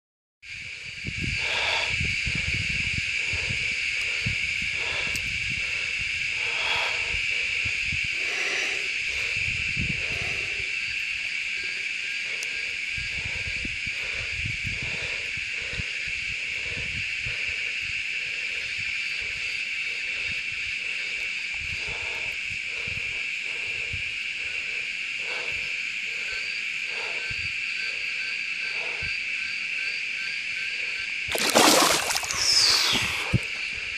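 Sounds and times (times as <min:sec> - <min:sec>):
high-pitched insect drone: 0:00.5 - 0:33.9
fainter lower calls: 0:31.8 - 0:33.4.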